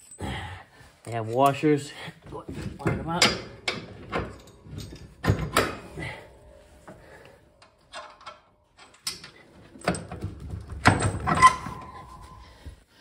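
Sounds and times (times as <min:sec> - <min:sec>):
metal frame clanking and knocking: 0:02.4 - 0:12.4.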